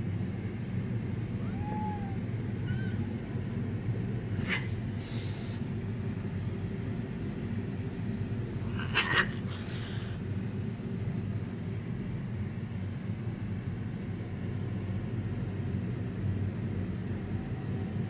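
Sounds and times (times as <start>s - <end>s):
steady low rumble: 0.0s - 18.0s
faint cat meow: 1.4s - 3.2s.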